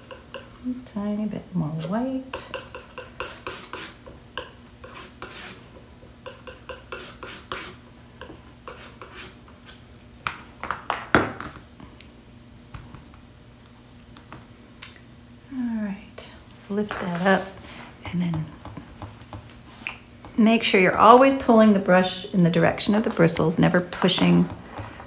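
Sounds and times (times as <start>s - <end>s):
palette knife tapping and scraping: 1.8s - 9.8s.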